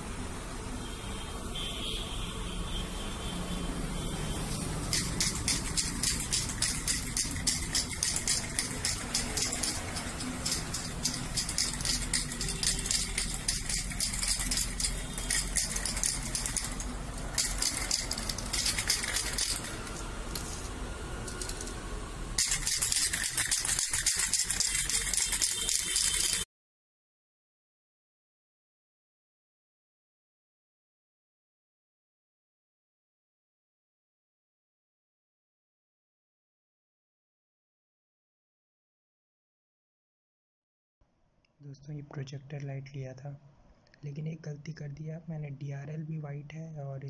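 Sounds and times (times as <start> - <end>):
spray can ball rattling: 4.5 - 20.7, 21.3 - 21.8, 22.4 - 26.5.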